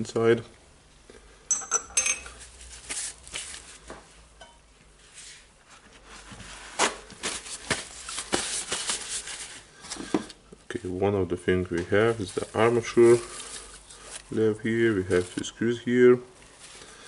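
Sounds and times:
rustling and scraping on a workbench: 2.0s - 4.2s, 4.8s - 10.4s.

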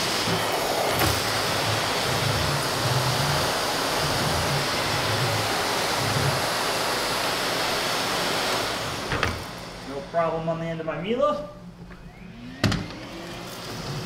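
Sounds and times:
nozzle rumbling on floor: 0.0s - 7.8s
vacuum cleaner suction: 0.0s - 10.8s, 12.0s - 14.0s.

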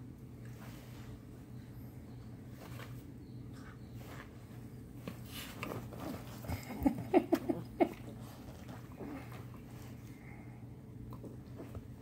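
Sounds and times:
paws rustling on bedding: 0.3s - 6.9s.

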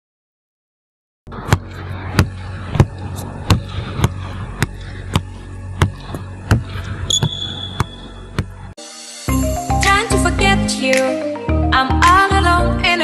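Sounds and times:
steady low hum: 1.3s - 8.8s
ball bouncing on hard floor: 5.8s - 8.5s.

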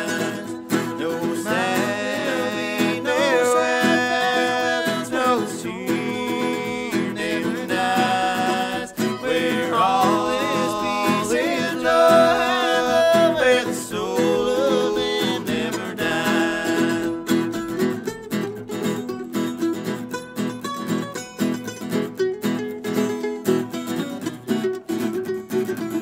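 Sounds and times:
men singing in harmony: 0.0s - 17.4s
mandolin: 0.0s - 26.0s
strummed acoustic guitar: 0.0s - 26.0s.

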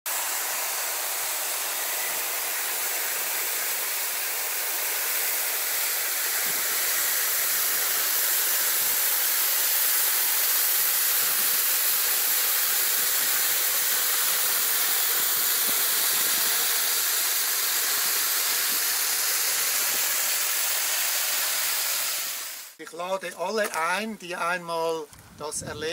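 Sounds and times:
mountain stream rushing: 0.1s - 22.8s.

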